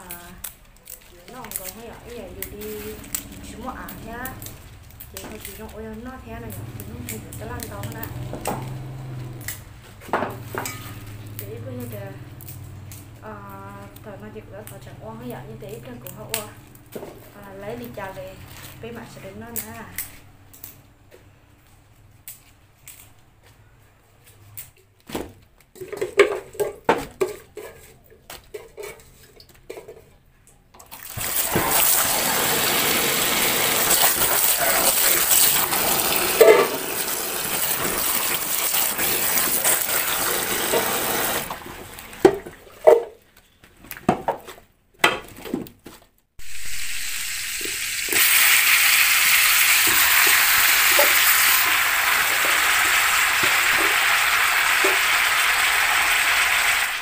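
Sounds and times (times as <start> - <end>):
tap water running into sink: 30.9 - 42.7, 46.7 - 57.0.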